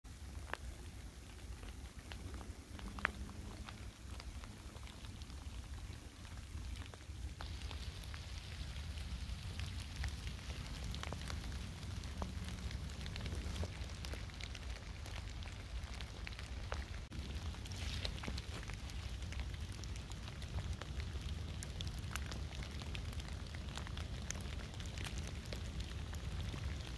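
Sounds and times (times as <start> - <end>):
low rain rumble: 0.0 - 26.9
dense rain hiss: 0.1 - 26.9
raindrops ticking on leaves: 0.1 - 26.9.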